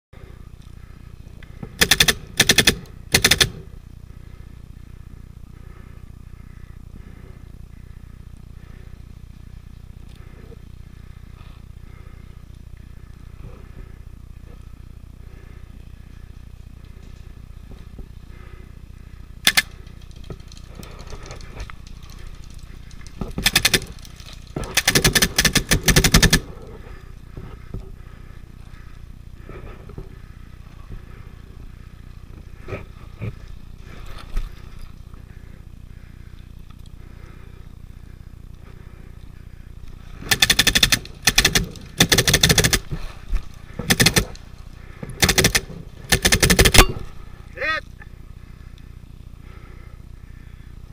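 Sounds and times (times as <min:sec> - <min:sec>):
paintball marker firing: 0:01.8 - 0:03.7, 0:19.4 - 0:19.8, 0:23.2 - 0:24.0, 0:24.6 - 0:26.5, 0:40.3 - 0:43.0, 0:43.8 - 0:44.4, 0:45.1 - 0:47.0.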